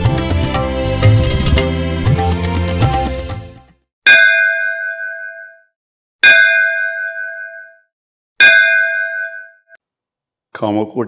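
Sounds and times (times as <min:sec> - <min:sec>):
metal bell ringing: 0:04.1 - 0:05.6, 0:06.2 - 0:07.8, 0:08.4 - 0:09.8.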